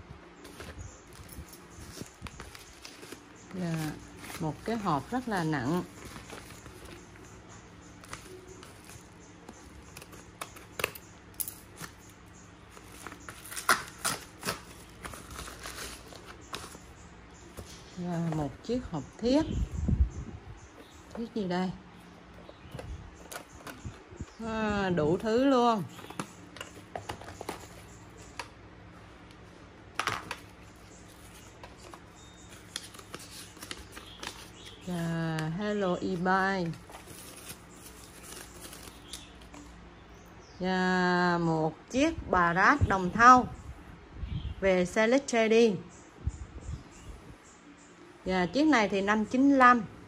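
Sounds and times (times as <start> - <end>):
paper mailer rustling: 0.4 - 11.0, 12.6 - 18.6, 30.0 - 39.6
sharp paper crackles: 12.7 - 16.9, 31.0 - 35.0, 36.1 - 39.6.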